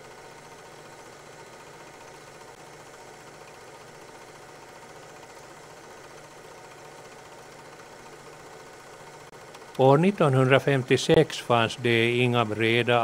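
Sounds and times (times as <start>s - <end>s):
faint mechanical hum with hiss: 0.0s - 13.0s.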